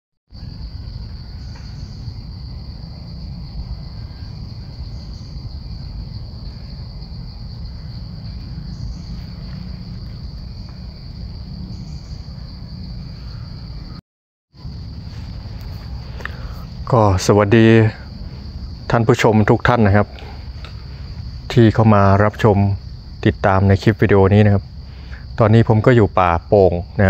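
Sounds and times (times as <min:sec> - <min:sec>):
faint insect calls: 0:00.3 - 0:14.0, 0:14.6 - 0:27.0
insects droning: 0:00.3 - 0:14.0, 0:14.6 - 0:27.0
low rumble: 0:14.6 - 0:19.1.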